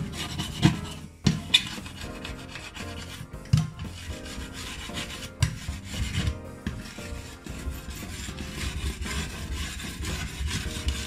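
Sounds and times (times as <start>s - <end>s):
cloth scrubbing glass hob: 0.0s - 11.0s.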